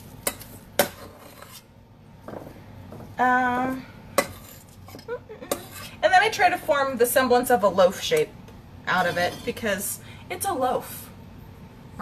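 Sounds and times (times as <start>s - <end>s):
spoon clinking and scraping bowl: 0.2s - 1.7s, 4.2s - 6.0s.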